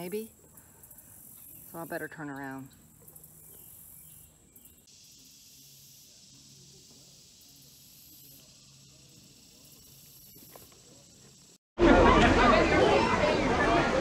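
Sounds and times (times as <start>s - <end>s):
high-pitched insect drone: 3.0s - 11.6s.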